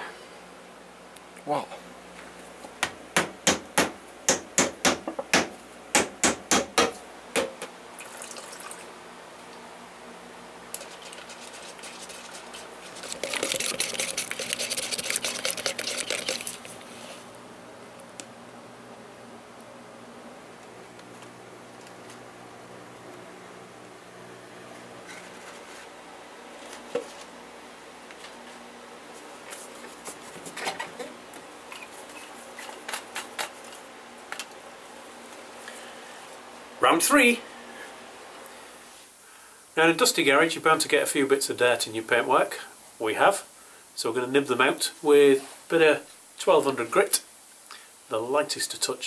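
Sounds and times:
stirrer scraping in a cup: 10.8s - 17.2s.

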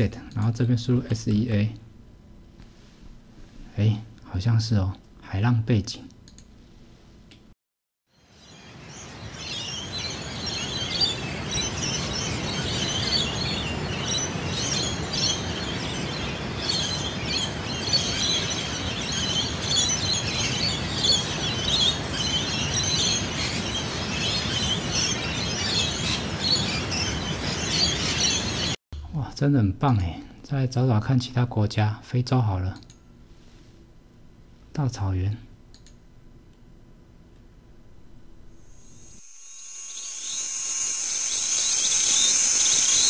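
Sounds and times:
lorikeets chirping and calling: 8.2s - 28.8s.

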